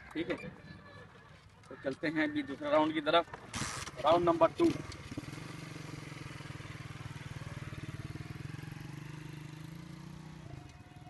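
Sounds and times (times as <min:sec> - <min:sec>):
small motorcycle engine running: 0:03.6 - 0:11.0.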